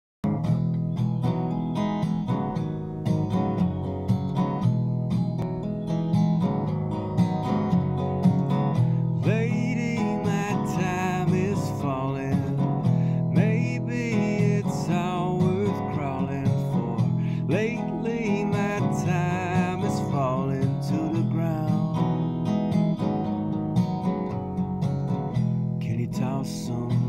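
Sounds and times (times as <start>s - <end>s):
resonator guitar playing: 0.3s - 27.0s
man singing: 9.2s - 22.4s, 25.8s - 27.0s.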